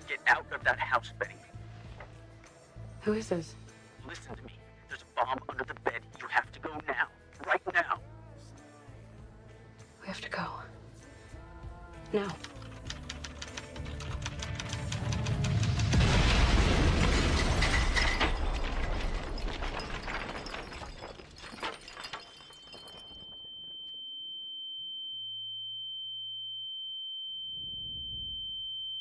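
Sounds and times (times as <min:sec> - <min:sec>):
bomb explosion: 0:15.6 - 0:20.4
high-pitched ringing tone: 0:22.7 - 0:29.0.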